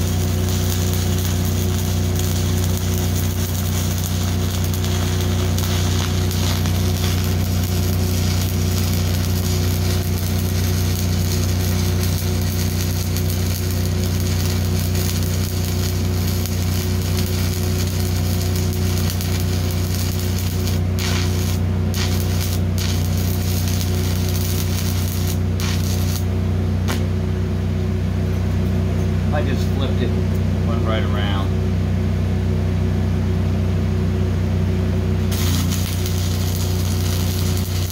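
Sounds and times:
welding arc crackling: 0:00.0 - 0:27.2, 0:35.2 - 0:37.9
low machine hum: 0:00.0 - 0:37.9.

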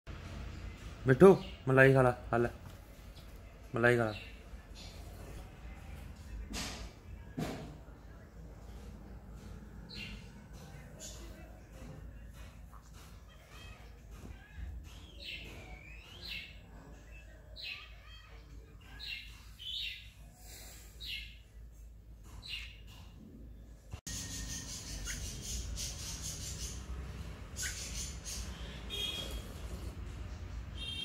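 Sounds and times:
parakeet calls: 0:24.1 - 0:29.7.

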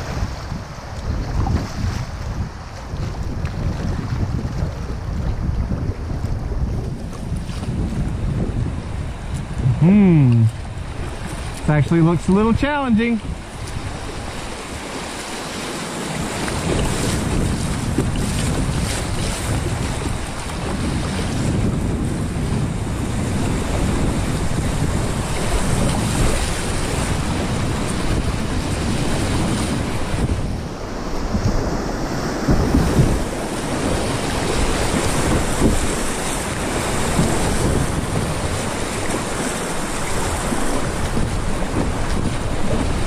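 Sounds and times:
wind on microphone: 0:00.0 - 0:43.0
creek water rushing: 0:07.6 - 0:22.0, 0:22.7 - 0:43.0.

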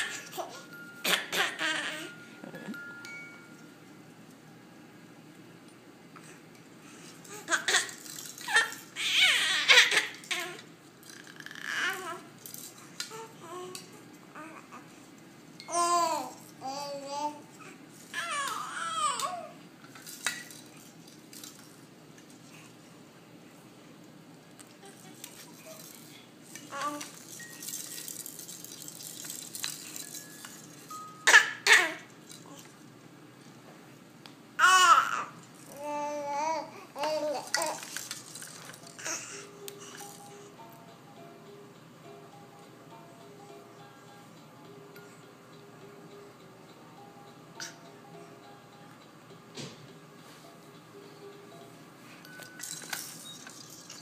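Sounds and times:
baby toys rattling: 0:07.2 - 0:14.0, 0:17.9 - 0:21.8, 0:24.8 - 0:32.7, 0:34.6 - 0:40.4, 0:52.3 - 0:54.0
baby cooing: 0:07.3 - 0:12.3, 0:15.7 - 0:19.6.

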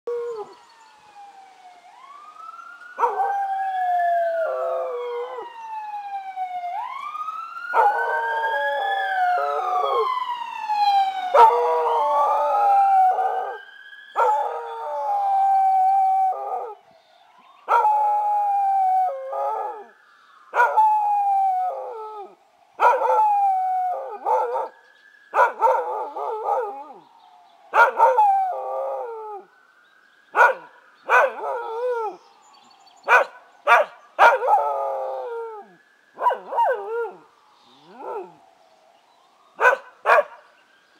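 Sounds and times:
emergency vehicle siren wailing: 0:00.1 - 0:40.9
dog howling: 0:10.8 - 0:13.6, 0:17.7 - 0:19.9, 0:20.6 - 0:24.7, 0:25.4 - 0:27.0, 0:27.7 - 0:29.5, 0:30.4 - 0:32.2, 0:33.1 - 0:38.4.

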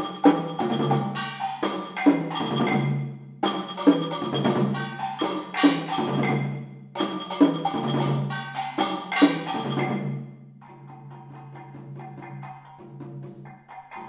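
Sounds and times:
ringing metallic strokes: 0:00.0 - 0:10.8
percussion trio playing: 0:00.0 - 0:14.0.

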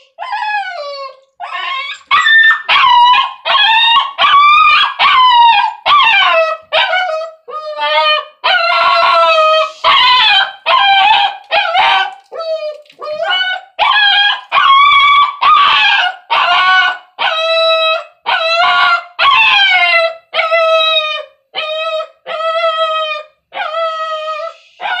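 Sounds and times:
dog crying out: 0:00.0 - 0:25.0.

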